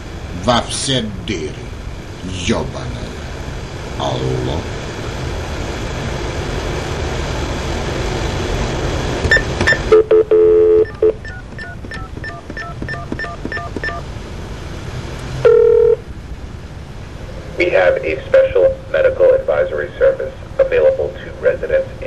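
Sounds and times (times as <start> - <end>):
dial tone: 9.3 - 14.0, 15.4 - 16.0
short beeps: 9.3 - 14.0
touch-tone dialing digits: 9.3 - 14.0, 15.5 - 16.0.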